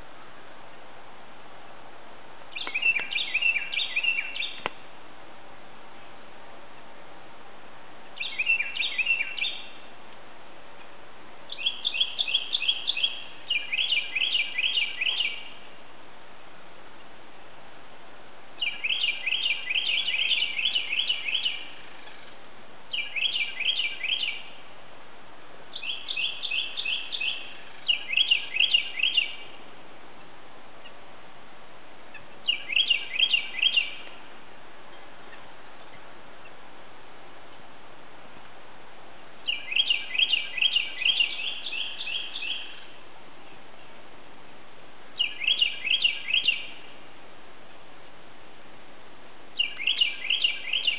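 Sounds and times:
bird singing whistles: 2.6 - 4.7, 8.2 - 9.7, 11.5 - 15.5, 18.6 - 21.7, 22.9 - 24.5, 25.8 - 29.4, 32.5 - 34.1, 39.4 - 42.8, 45.2 - 46.8, 49.6 - 50.9.

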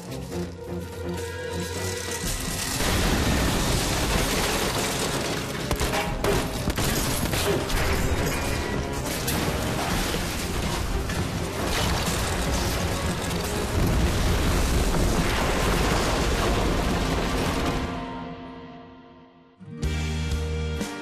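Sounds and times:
tense film score: 0.0 - 21.0
gunfire and booms: 2.6 - 18.2.

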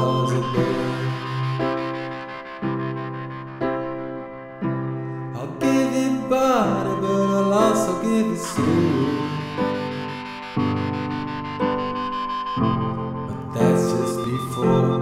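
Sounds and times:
slow song: 0.0 - 15.0
downward pitch slide: 6.2 - 15.0.

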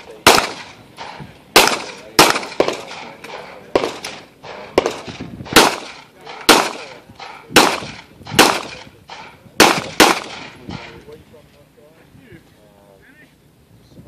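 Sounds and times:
pistol shots with echo: 0.0 - 11.0.

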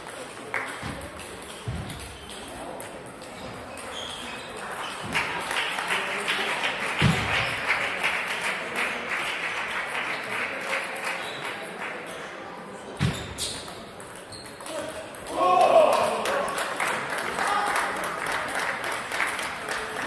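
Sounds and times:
spectators clapping: 0.0 - 0.8, 4.7 - 12.1, 15.3 - 20.0.

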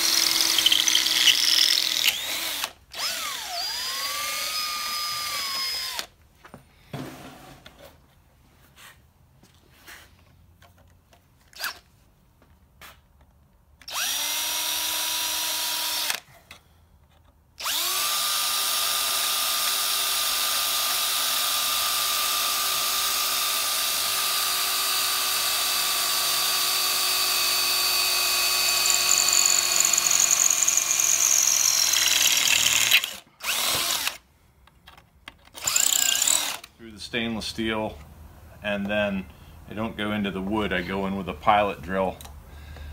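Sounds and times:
drill boring through metal: 0.0 - 6.1, 13.9 - 16.2, 17.6 - 34.2, 35.6 - 36.7.

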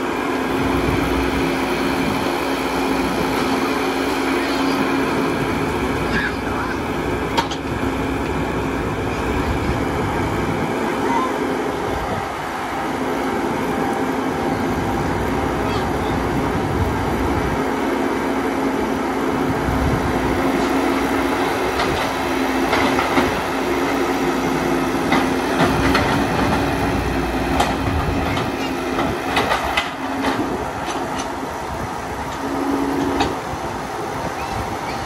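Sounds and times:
excavator engine and hydraulics running: 0.0 - 35.0.

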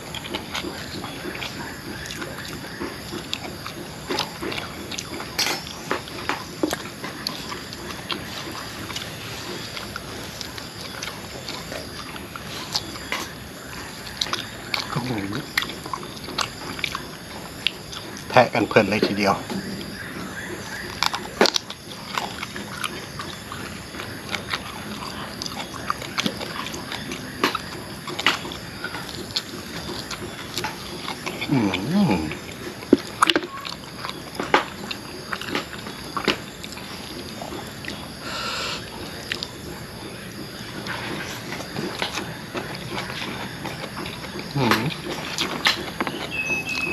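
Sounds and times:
man chewing meat off bone: 0.0 - 46.9
man humming: 31.5 - 32.4, 44.6 - 44.9.

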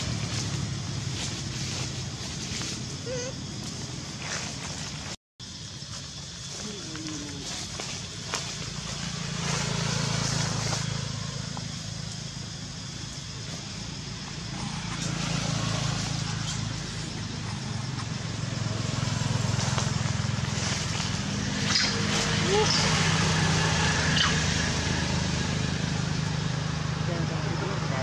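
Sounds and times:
engine humming: 0.0 - 28.0.

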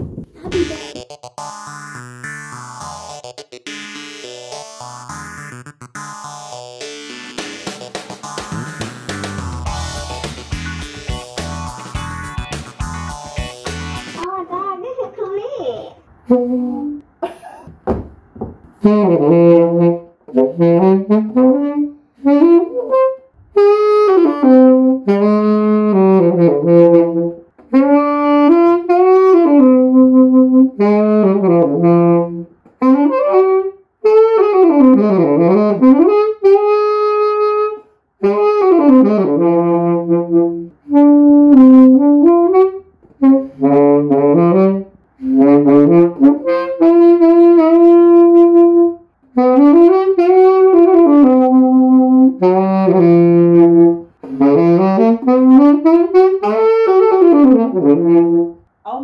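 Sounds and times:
tenor saxophone playing: 16.3 - 17.0, 18.8 - 58.6.

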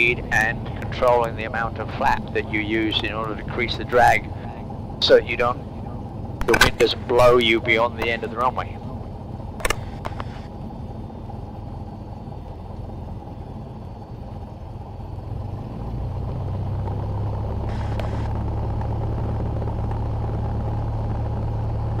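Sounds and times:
small plane engine and propeller: 0.0 - 22.0.

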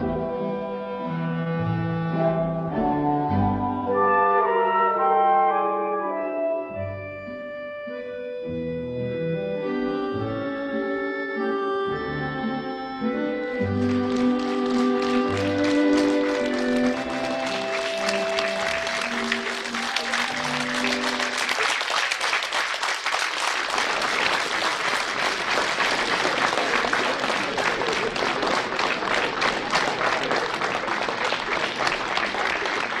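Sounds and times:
slow music with held notes: 0.0 - 21.4
audience applause: 13.6 - 33.0.

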